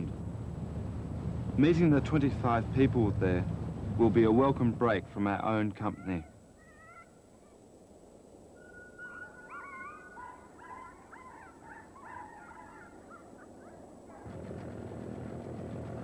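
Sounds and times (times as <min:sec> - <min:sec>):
low outdoor hiss: 0:00.0 - 0:16.0
wavering animal calls: 0:05.8 - 0:07.5, 0:08.6 - 0:14.4.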